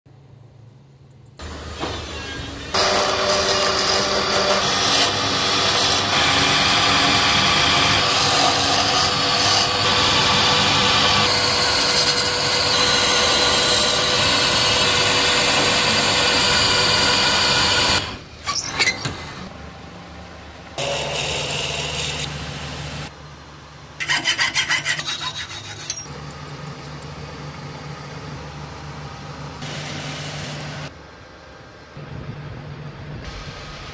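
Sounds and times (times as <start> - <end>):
lathe motor hum: 2.8 - 18.2
turning tool scraping wood: 24.0 - 26.1.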